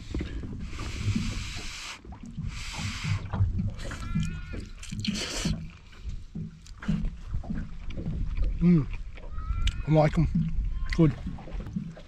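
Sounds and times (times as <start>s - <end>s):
person slurping noodles: 5.0s - 5.6s.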